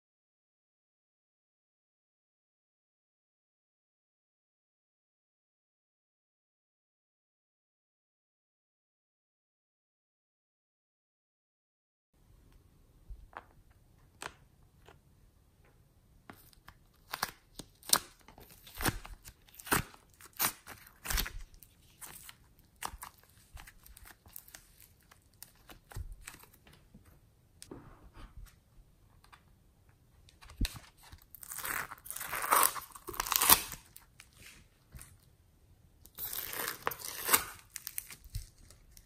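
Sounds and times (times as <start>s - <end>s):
clay crackling and tearing: 16.3s - 26.8s, 30.4s - 35.3s, 36.0s - 39.0s
slime crunchy crackling: 17.0s - 26.5s, 30.6s - 34.4s, 36.1s - 39.0s.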